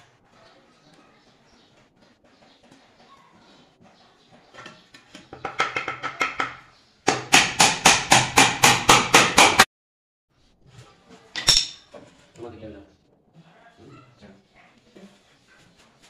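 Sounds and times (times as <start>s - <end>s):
hammer striking nails: 5.4s - 9.7s.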